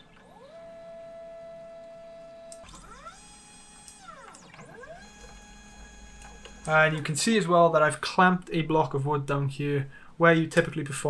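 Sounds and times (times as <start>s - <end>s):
stepper motors whining: 0.0s - 7.2s.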